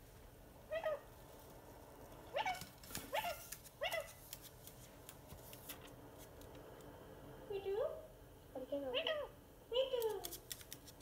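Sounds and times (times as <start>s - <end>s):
parakeet calls rising in pitch: 0.7s - 1.1s.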